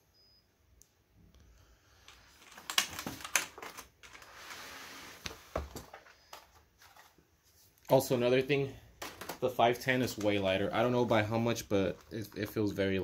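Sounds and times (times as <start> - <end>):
keyboard plastic clicks and clacks: 2.4 - 4.2.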